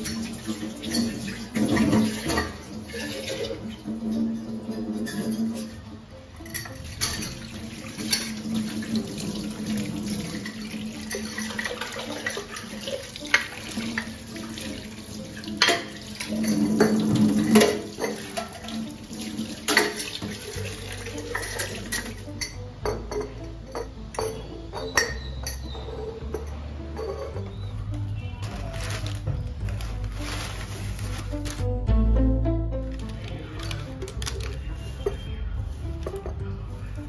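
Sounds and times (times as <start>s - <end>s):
tap water running into sink: 7.0s - 22.3s
knocks and clinks in sink: 15.6s - 27.6s.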